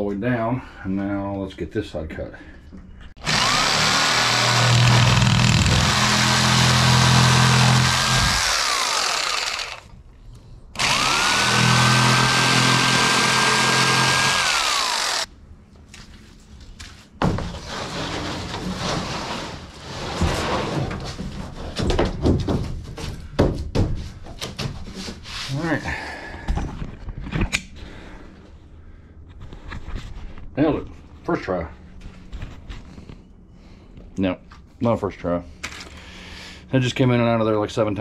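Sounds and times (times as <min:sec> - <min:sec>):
jigsaw motor whine: 0:03.2 - 0:09.9, 0:10.8 - 0:15.3.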